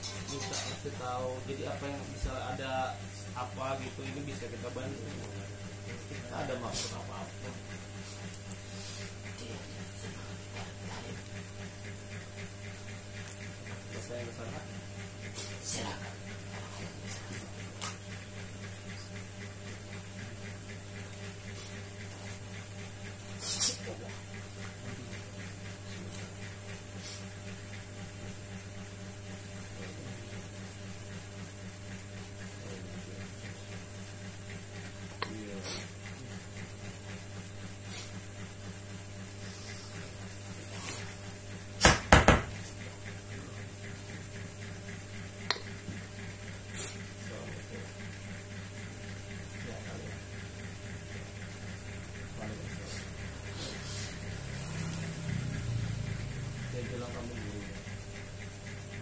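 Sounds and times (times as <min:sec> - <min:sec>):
low electrical hum: 0:00.0 - 0:59.0.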